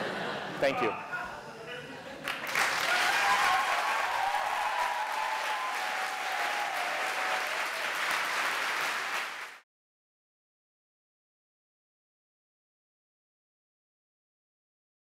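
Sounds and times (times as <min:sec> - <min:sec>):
audience applauding: 0:02.2 - 0:09.6.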